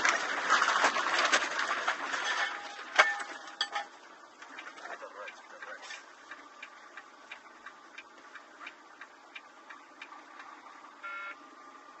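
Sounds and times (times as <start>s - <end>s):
truck cab noise: 0.0s - 12.0s
turn signal clicking: 6.3s - 10.5s
short electronic beep: 11.0s - 11.4s.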